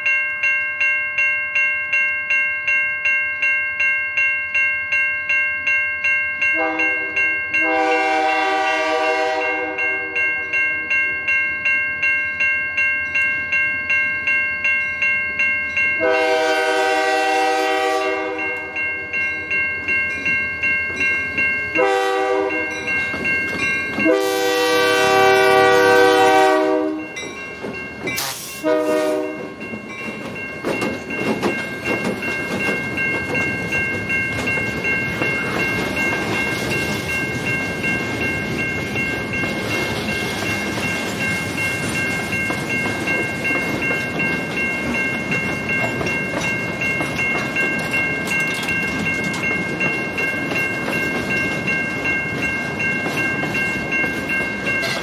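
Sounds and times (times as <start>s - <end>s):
railroad crossing bell ringing: 0.0s - 55.0s
locomotive horn blasts: 6.6s - 10.2s, 16.0s - 18.8s, 21.8s - 22.8s, 24.0s - 27.0s, 28.6s - 29.5s
train rumble: 19.9s - 55.0s.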